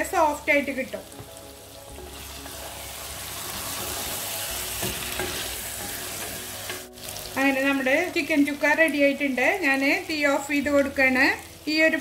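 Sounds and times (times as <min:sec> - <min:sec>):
food sizzling in a pan: 0:00.0 - 0:12.0
spatula stirring: 0:01.9 - 0:07.0.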